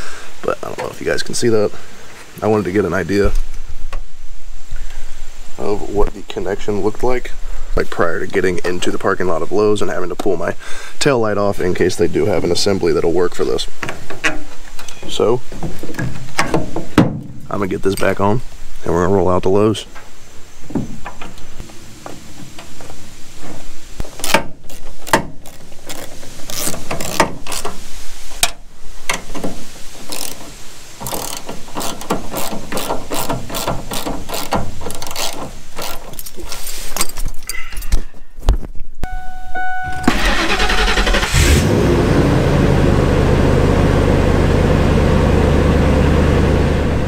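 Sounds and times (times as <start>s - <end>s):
brief steady tone: 39.0s - 40.2s
engine cranking and idling: 39.9s - 47.0s.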